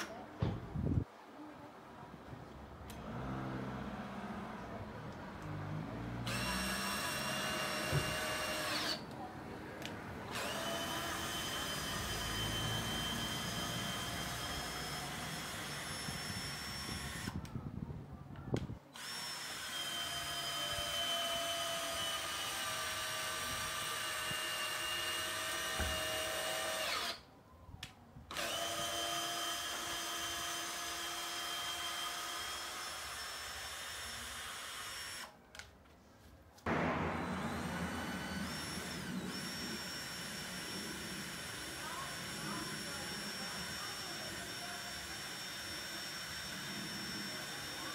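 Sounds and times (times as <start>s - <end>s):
cordless drill motor whine: 6.2s - 9.1s, 10.3s - 17.5s, 19.0s - 27.2s, 28.3s - 35.3s, 37.3s - 47.9s.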